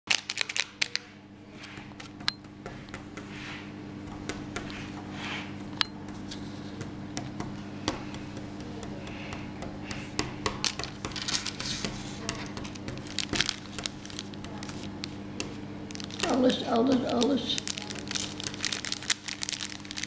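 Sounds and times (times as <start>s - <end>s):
plastic crinkling: 0.1s - 1.1s, 10.6s - 20.0s
steady low hum: 0.8s - 20.0s
plastic bag handled on table: 10.6s - 20.0s.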